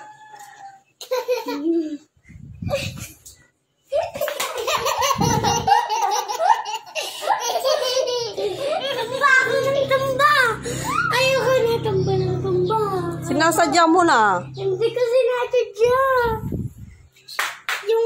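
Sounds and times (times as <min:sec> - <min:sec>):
young children laughing: 0:00.8 - 0:12.9.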